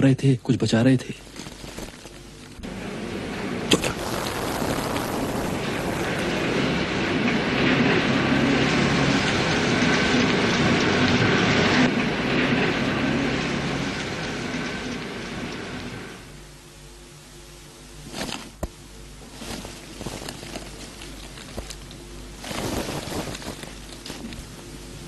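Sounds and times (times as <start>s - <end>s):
motor vehicle passing: 2.6s - 16.1s.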